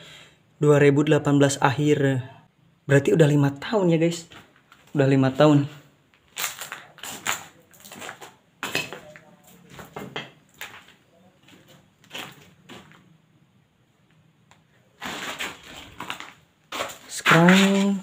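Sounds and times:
footsteps crunching on debris: 4.3 - 5.1, 6.1 - 13.2, 15.0 - 18.0.

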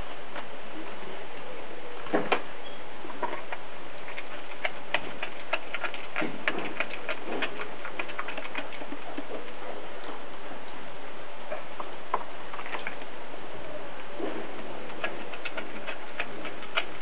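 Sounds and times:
dog chewing and crunching bones: 3.1 - 9.7, 12.5 - 13.1, 14.0 - 17.0.

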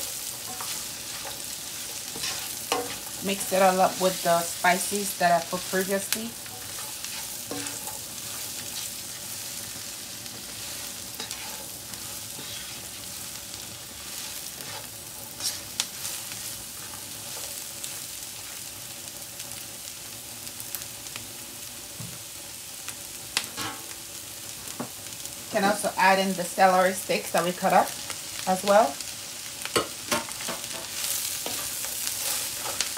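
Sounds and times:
cabbage sizzling in oil: 0.0 - 32.9
utensil scraping and clicking on pan: 0.3 - 3.2, 6.4 - 8.6, 11.2 - 11.8.

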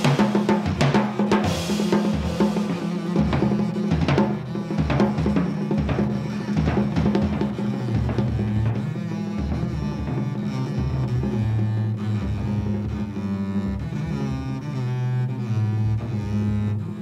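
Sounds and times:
drum kit cymbals and drums: 0.0 - 10.3
bowed double bass: 0.0 - 17.0.

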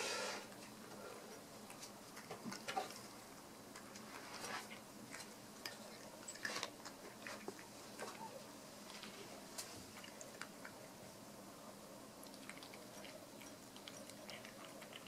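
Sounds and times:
cat crunching dry kibble: 12.2 - 15.0.

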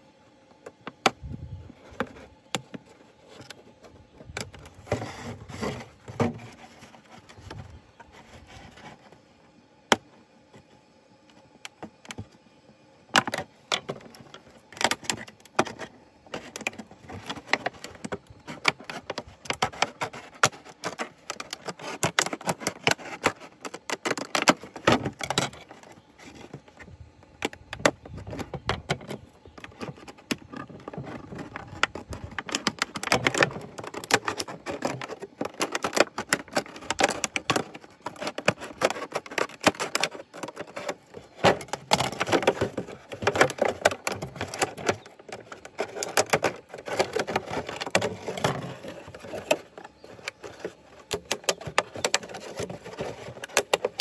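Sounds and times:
plastic crackling: 13.1 - 54.0.

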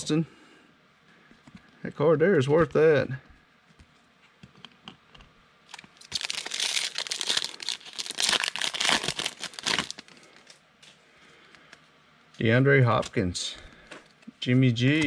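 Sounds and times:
foil wrapper tearing and crinkling: 5.7 - 10.6.

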